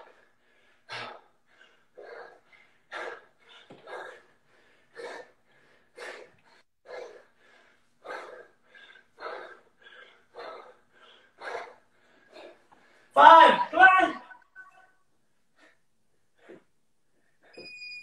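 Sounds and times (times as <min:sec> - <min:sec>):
man breathing hard: 0:00.0 - 0:13.2.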